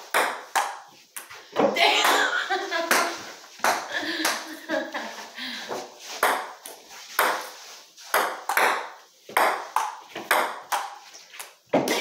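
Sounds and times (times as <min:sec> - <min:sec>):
table tennis ball hits: 0:00.0 - 0:02.3, 0:02.9 - 0:04.4, 0:06.2 - 0:12.0.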